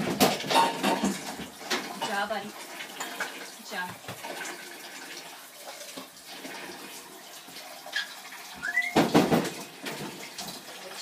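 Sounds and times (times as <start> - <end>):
water running from sink tap: 0.0 - 11.0
short rising squeak: 8.0 - 9.1.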